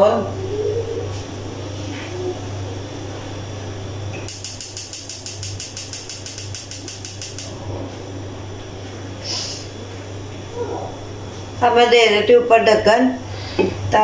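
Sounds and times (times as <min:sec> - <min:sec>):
gas stove igniter clicking: 0:04.2 - 0:07.6.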